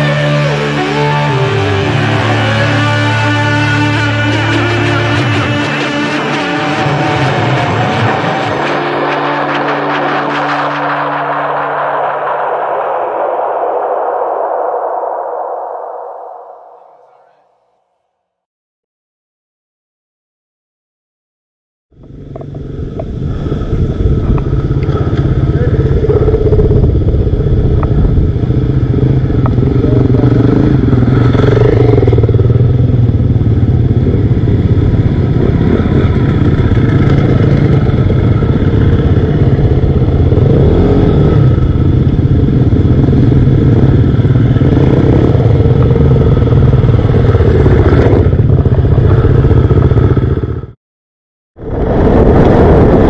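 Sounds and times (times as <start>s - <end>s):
motorcycle engine running: 0.0s - 13.1s, 21.9s - 50.8s.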